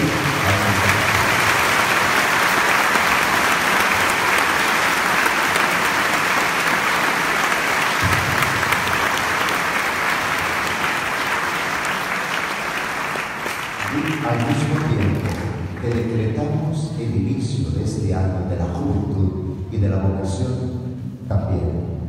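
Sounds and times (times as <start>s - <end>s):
crowd applauding: 0.0s - 16.4s.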